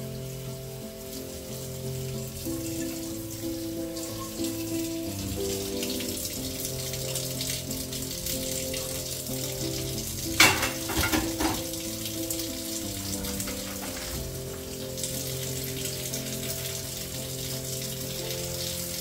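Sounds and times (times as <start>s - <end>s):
soft background music: 0.0s - 19.0s
crockery clattering: 10.3s - 11.8s, 13.2s - 14.4s
tap running into a sink: 10.3s - 11.9s, 13.2s - 14.7s.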